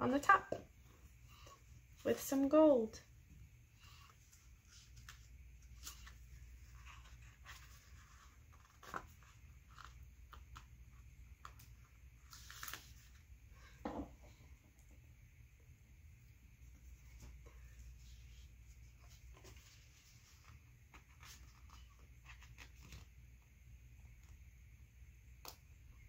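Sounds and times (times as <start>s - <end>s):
paper rustles: 4.6s - 10.7s, 11.3s - 13.2s, 17.1s - 23.2s.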